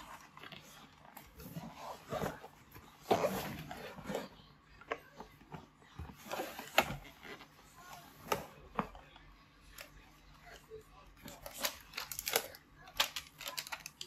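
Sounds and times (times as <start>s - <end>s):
cardboard rustling and scraping: 0.0s - 8.9s.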